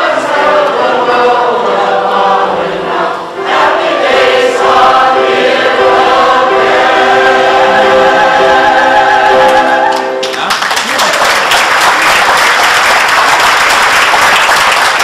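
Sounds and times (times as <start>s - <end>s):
choir singing: 0.0s - 10.2s
audience applauding: 9.6s - 15.0s.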